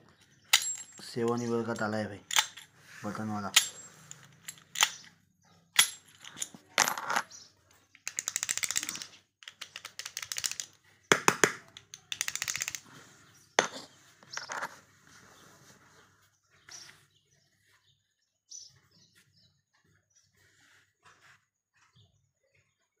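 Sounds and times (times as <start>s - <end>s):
padlock metallic clicks and clinks: 0.2s - 2.7s, 3.5s - 12.9s
fast rattling clicks: 0.5s - 2.7s, 3.5s - 5.2s, 7.9s - 12.9s.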